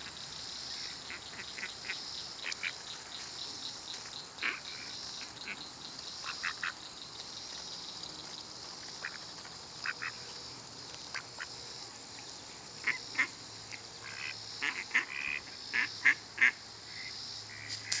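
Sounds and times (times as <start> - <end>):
steady high-pitched hiss: 0.0 - 18.0
ducks quacking: 0.8 - 2.9, 4.4 - 6.8, 9.8 - 10.2, 12.8 - 18.0.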